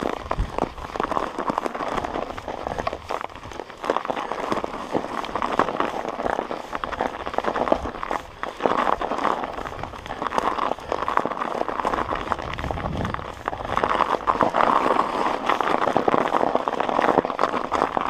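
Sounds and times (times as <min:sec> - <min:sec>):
bike tyres crunching snow: 0:00.0 - 0:18.0
crackle of fine clicks: 0:00.0 - 0:18.0.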